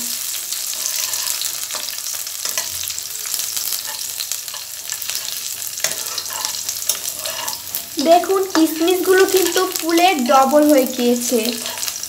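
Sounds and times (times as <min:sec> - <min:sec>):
spices sizzling in oil: 0:00.0 - 0:12.0
spatula scraping a pan: 0:00.6 - 0:09.8, 0:11.6 - 0:12.0.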